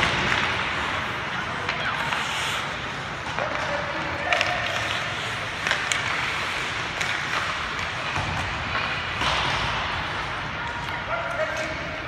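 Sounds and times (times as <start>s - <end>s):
hockey sticks and puck knocking: 0.0s - 2.3s, 3.2s - 10.0s
skate blades scraping on ice: 0.0s - 10.1s.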